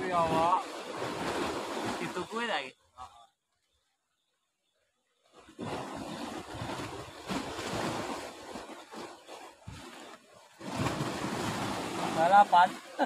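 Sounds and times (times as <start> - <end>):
waves washing against rocks: 5.6 - 13.0.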